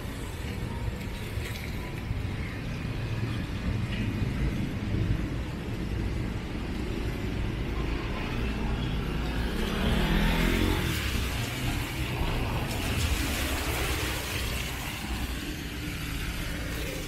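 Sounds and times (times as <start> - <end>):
traffic rumble: 0.0 - 17.0
car passing on wet road: 9.0 - 17.0.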